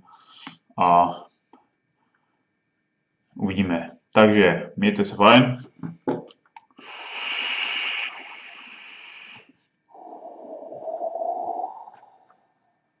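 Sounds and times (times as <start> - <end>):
hissing vape draw: 6.8 - 10.1
breathy exhale: 6.8 - 12.3.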